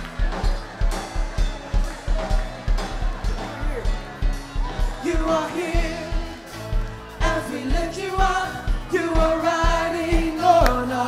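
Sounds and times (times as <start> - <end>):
worship band and singers: 0.0 - 11.0.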